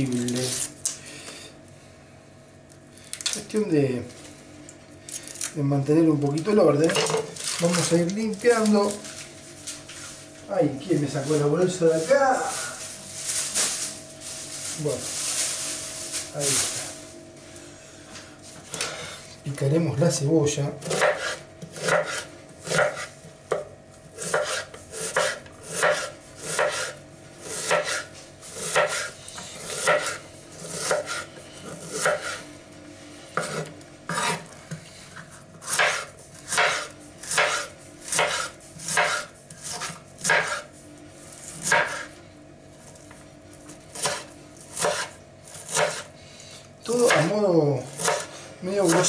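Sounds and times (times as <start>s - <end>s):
knife chopping on wooden board: 20.8s - 29.1s, 29.7s - 32.4s, 33.4s - 34.5s, 35.6s - 40.7s, 41.6s - 42.1s, 43.9s - 46.1s, 47.0s - 47.4s, 48.0s - 49.0s.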